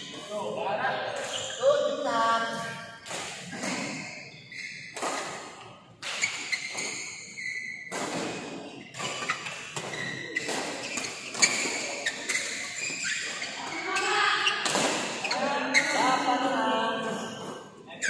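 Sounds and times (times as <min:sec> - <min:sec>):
shoes squeaking on floor: 0:00.0 - 0:18.0
racket hitting shuttlecock: 0:02.5 - 0:04.0, 0:04.8 - 0:16.0.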